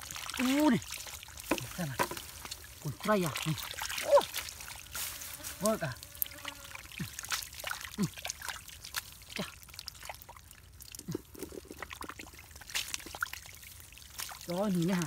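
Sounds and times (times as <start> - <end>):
sucking squelches: 0.0 - 10.3
hands squelching through wet mud: 0.0 - 15.0
water trickling: 0.0 - 15.0.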